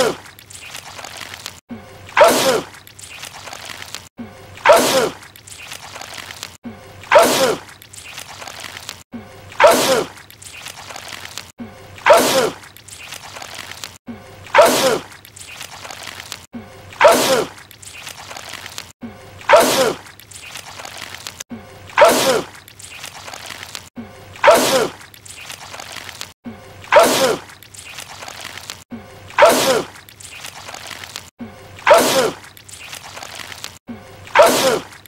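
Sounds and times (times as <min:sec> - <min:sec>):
man sneezing loudly: 0:26.9 - 0:27.4, 0:29.4 - 0:29.9, 0:31.9 - 0:32.4, 0:34.4 - 0:34.9.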